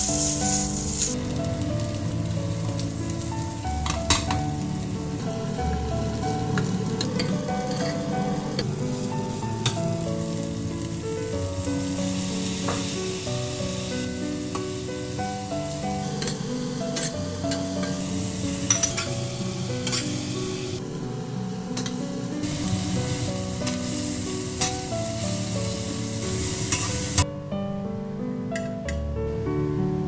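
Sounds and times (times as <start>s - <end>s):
food sizzling in hot oil: 0.0s - 27.2s
light background music: 0.0s - 30.0s.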